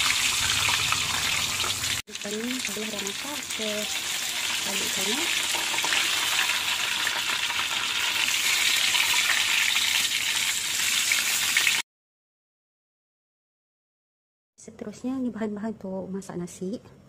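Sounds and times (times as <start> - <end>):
fish sizzling in hot oil: 0.0 - 11.8.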